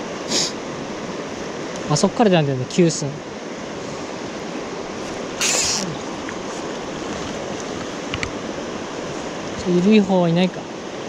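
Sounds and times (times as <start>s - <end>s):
stream rushing over rocks: 0.0s - 11.0s
brief sharp hiss: 5.4s - 6.0s.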